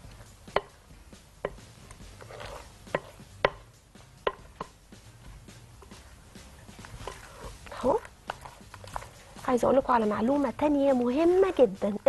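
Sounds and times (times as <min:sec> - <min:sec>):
spatula scraping glass bowl: 0:02.2 - 0:03.2, 0:06.9 - 0:09.3.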